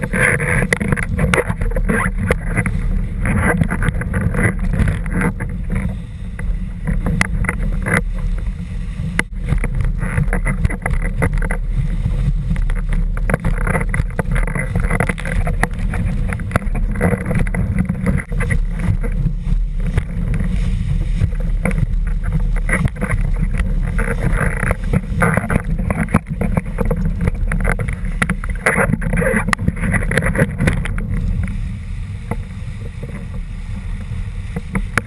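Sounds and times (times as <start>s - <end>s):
water rushing and splashing: 0.0s - 35.0s
wind buffeting microphone: 0.0s - 35.0s
sharp taps and knocks: 9.2s - 11.6s, 12.5s - 19.2s, 19.8s - 20.6s.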